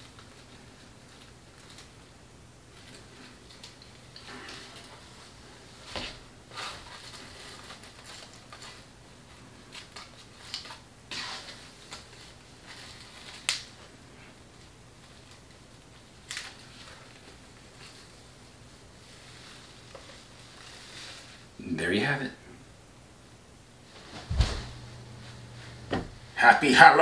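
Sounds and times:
tulle rustling: 0:02.7 - 0:21.6, 0:23.8 - 0:26.4.

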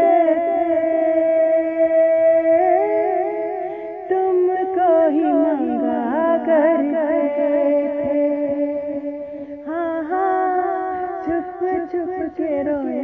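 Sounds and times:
woman singing wordless melody: 0:00.0 - 0:13.0.

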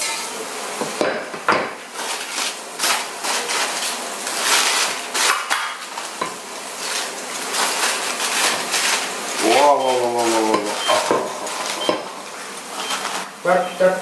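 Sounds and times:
aluminium foil crinkling and tearing: 0:01.9 - 0:11.8
knife scraping foil: 0:02.0 - 0:10.8.

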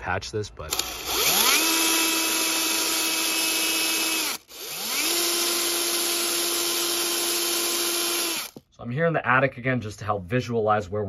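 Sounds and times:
cordless drill boring: 0:00.7 - 0:08.6.

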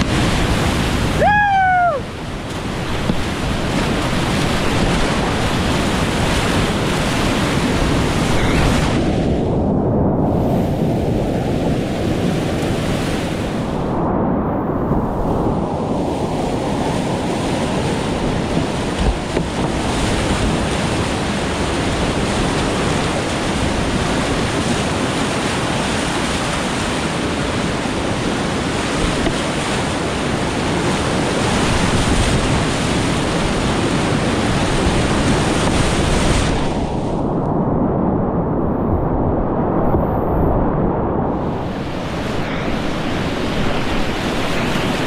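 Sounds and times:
whitewater rapids rushing: 0:00.0 - 0:09.0.

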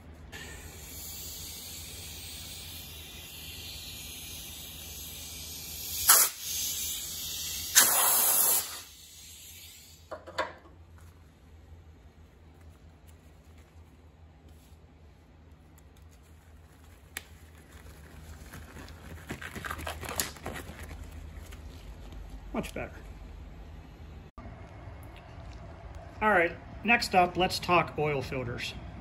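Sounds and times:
compressed air hissing from blow gun: 0:00.4 - 0:10.2.

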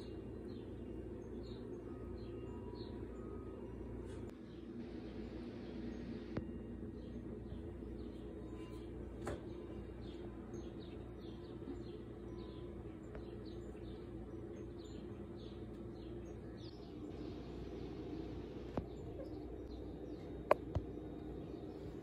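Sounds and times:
low hum: 0:00.0 - 0:22.0
small bird chirping: 0:09.6 - 0:17.1.

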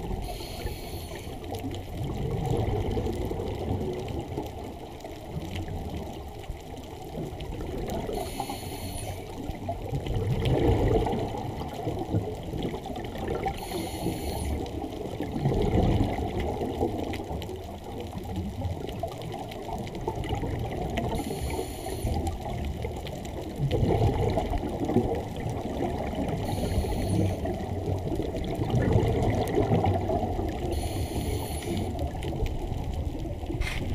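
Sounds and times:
exhaled air bubbling underwater: 0:00.0 - 0:33.9
regulator hiss on inhale: 0:00.1 - 0:01.6, 0:08.1 - 0:09.5, 0:13.5 - 0:14.8, 0:21.1 - 0:22.4, 0:26.4 - 0:27.5, 0:30.7 - 0:32.0, 0:33.6 - 0:33.9.

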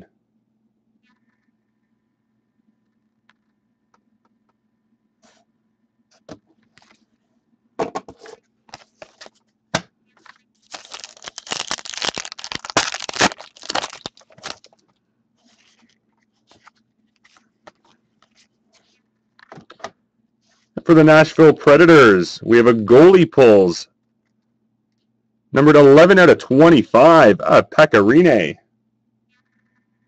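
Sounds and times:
handling of cards: 0:06.1 - 0:07.1, 0:08.2 - 0:09.5, 0:10.1 - 0:20.8
foil wrapper tearing and crinkling: 0:10.6 - 0:14.8.

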